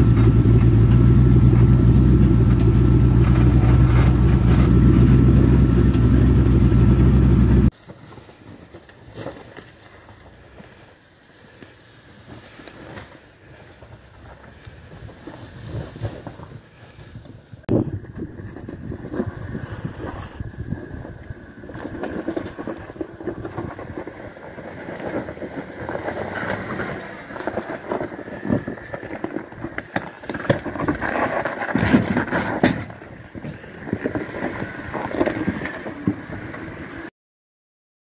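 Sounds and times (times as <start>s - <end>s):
car engine running low: 0.0s - 7.7s, 17.7s - 37.1s
tyres scraping on stone: 21.9s - 36.2s.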